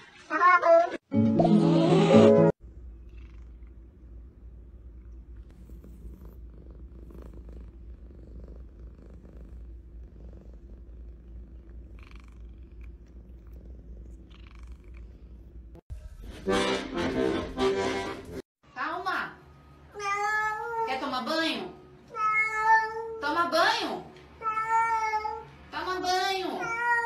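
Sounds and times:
cat purring: 0:02.6 - 0:15.8.

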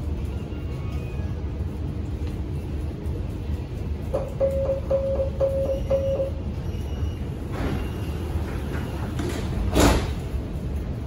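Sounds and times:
train rumble: 0:00.0 - 0:11.0
door warning beeps: 0:04.1 - 0:09.2
sliding doors closing thump: 0:07.4 - 0:10.3.

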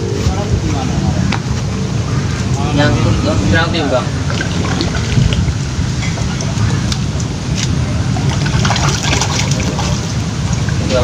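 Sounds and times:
fish splashing in water: 0:04.1 - 0:11.0.

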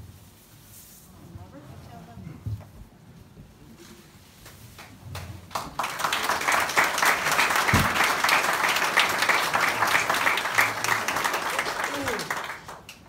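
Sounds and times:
audience applauding: 0:04.8 - 0:13.0.

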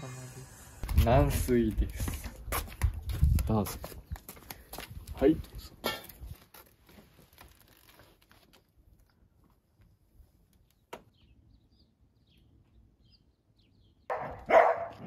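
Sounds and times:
dog barking loudly: 0:14.1 - 0:15.0.

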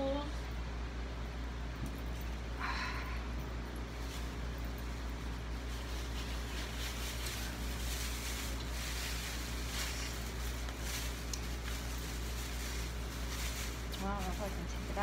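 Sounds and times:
low hum: 0:00.0 - 0:15.0
soft packaging rustling: 0:03.6 - 0:15.0.

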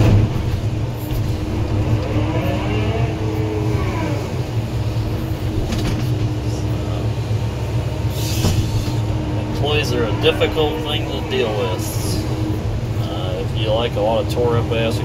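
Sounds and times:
excavator diesel engine running: 0:00.0 - 0:15.0
hydraulics whining: 0:00.0 - 0:15.0.

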